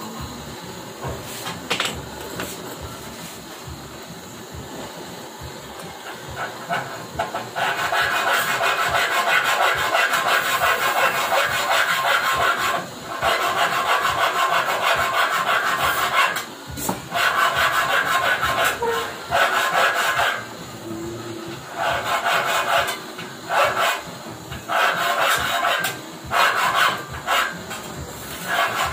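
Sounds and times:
gas torch flame hissing: 0.0 - 28.9
metal being filed: 6.1 - 16.5, 17.1 - 20.5, 21.6 - 28.9.

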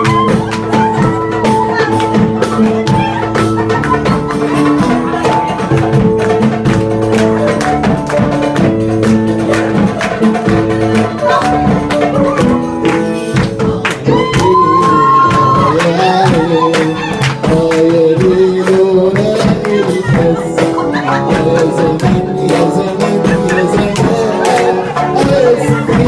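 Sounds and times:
electronic keyboard melody: 0.0 - 26.0
percussion beat: 0.0 - 26.0
person singing: 9.3 - 26.0.

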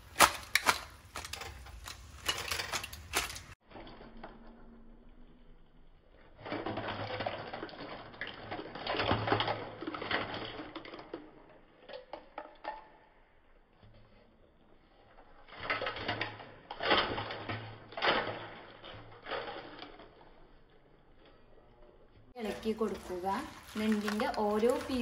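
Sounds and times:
crab shells clattering on metal: 0.0 - 3.6, 15.5 - 21.4, 22.4 - 25.0.

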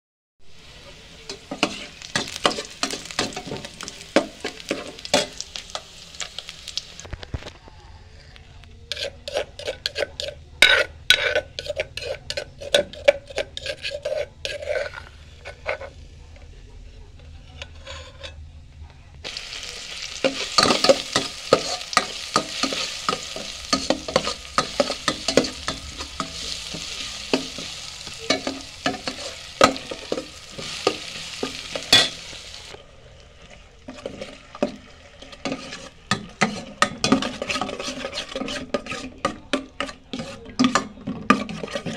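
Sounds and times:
loud sizzle: 0.4 - 7.6, 19.2 - 38.7
metal ladle scraping frying pan: 1.3 - 6.5, 8.9 - 16.0, 17.4 - 18.4, 19.3 - 32.8, 33.9 - 41.9.

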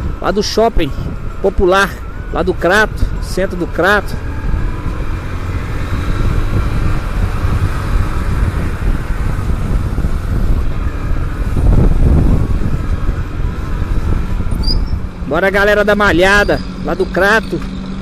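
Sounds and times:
wind rumble on microphone: 0.0 - 17.2
motorcycle engine running: 4.1 - 18.0.

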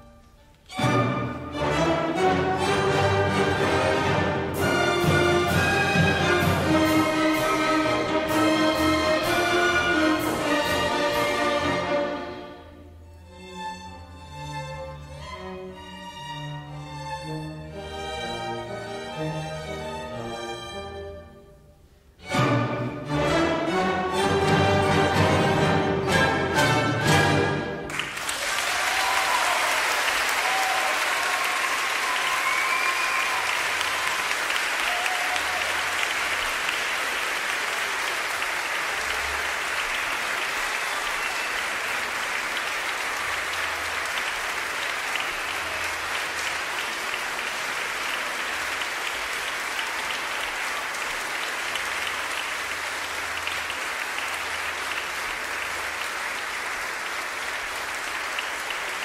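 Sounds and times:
audience applauding: 24.6 - 59.0.

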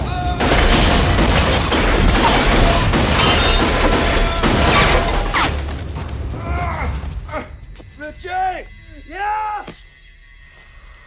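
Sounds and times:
film score music: 0.0 - 11.0
glass bottles shattering: 0.5 - 5.4.

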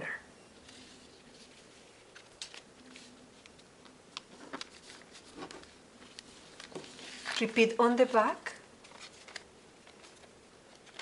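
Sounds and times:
paper rustling: 0.6 - 7.7, 8.8 - 11.0
paper creasing clicks: 8.8 - 11.0.

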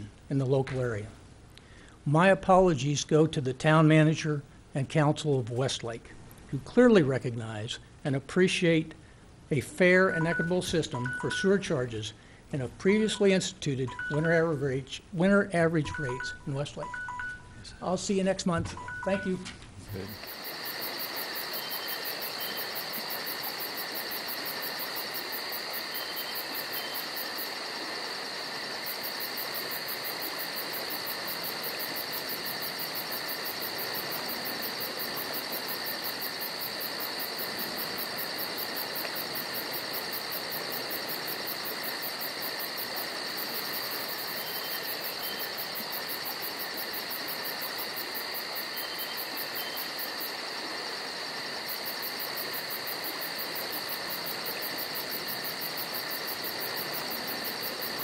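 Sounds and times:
steady hiss: 0.0 - 16.8, 19.2 - 58.0
two high steady tones: 15.9 - 17.9.

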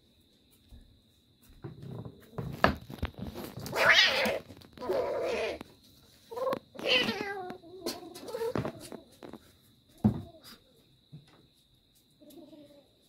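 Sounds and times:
kitten crying: 6.8 - 7.6.

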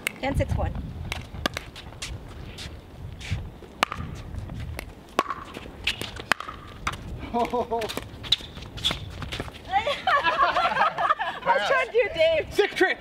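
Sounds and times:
footsteps scuffing on hard court: 1.0 - 9.7
paddles striking ball: 3.8 - 4.2, 4.8 - 8.1.

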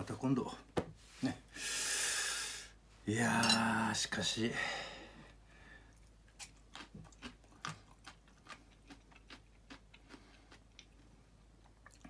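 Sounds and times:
person chewing food: 5.8 - 12.0.

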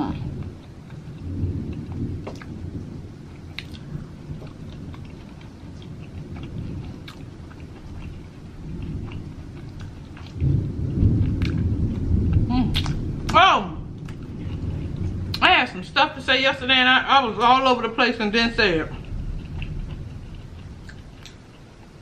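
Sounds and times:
chewing with mouth closed: 0.3 - 2.6, 3.3 - 10.6, 11.2 - 13.0, 18.9 - 22.0.

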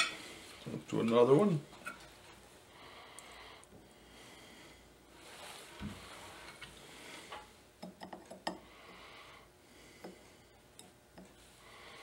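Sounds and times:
soft rustling: 5.1 - 7.3.

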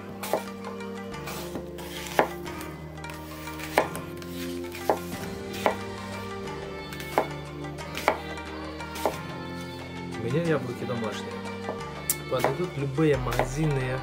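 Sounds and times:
soft background music: 0.0 - 14.0
knife striking cutting board: 0.2 - 0.6, 1.2 - 2.5, 3.2 - 5.9, 7.0 - 7.4, 8.0 - 8.3, 9.0 - 9.2, 12.4 - 12.6.

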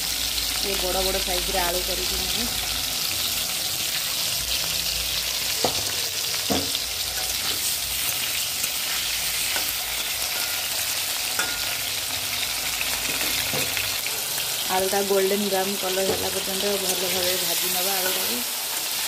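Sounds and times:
potatoes sizzling in hot oil: 0.0 - 19.0
metal spatula scraping a pan: 6.7 - 11.8.

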